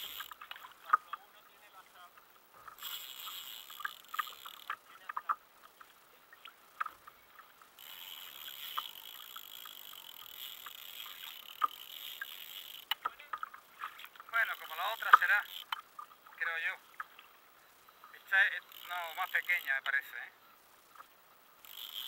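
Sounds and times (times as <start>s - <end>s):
water lapping: 0.0s - 22.0s
light ticks: 2.6s - 16.1s.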